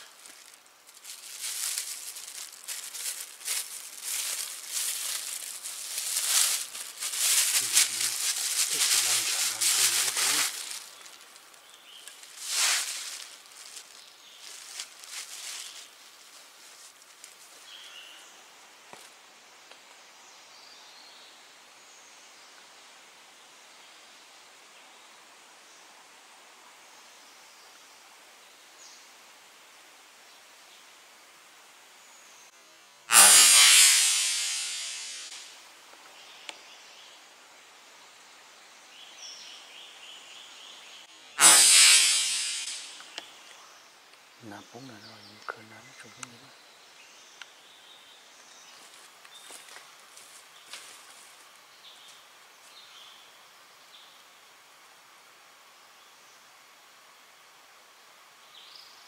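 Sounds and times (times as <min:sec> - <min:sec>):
soft bird or insect chirps: 0:00.0 - 0:18.6, 0:38.8 - 0:54.3
rustling of leaves and undergrowth: 0:00.0 - 0:20.7, 0:33.1 - 0:53.3
faint forest ambience: 0:00.0 - 0:59.0.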